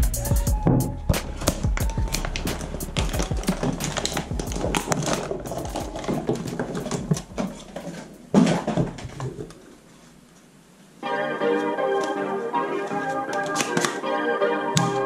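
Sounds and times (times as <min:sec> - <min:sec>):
cardboard and plastic rustling: 0:01.3 - 0:10.5, 0:11.9 - 0:14.1.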